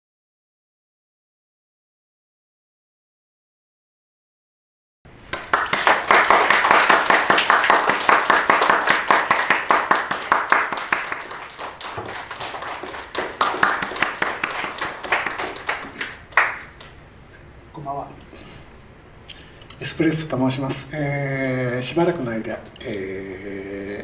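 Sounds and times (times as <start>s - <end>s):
small audience applauding: 5.2s - 17.0s.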